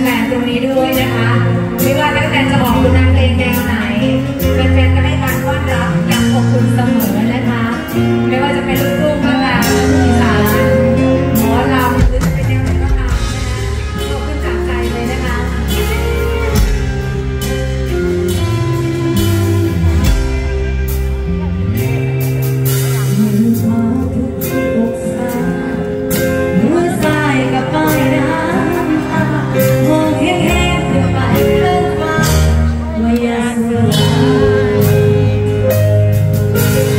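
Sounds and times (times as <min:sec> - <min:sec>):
live band playing: 0:00.0 - 0:36.9
drum kit beat: 0:01.0 - 0:36.9
person singing: 0:22.8 - 0:36.1.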